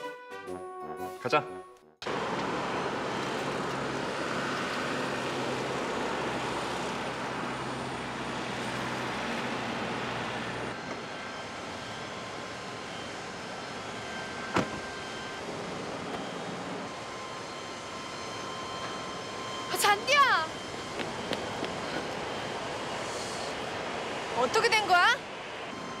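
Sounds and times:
jet aircraft noise: 2.0s - 26.0s.

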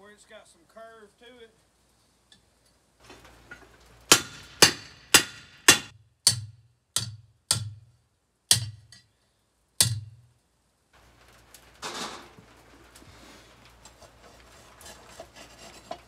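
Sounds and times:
hammer striking steel on anvil: 4.1s - 7.9s, 8.5s - 9.1s, 9.8s - 10.2s.

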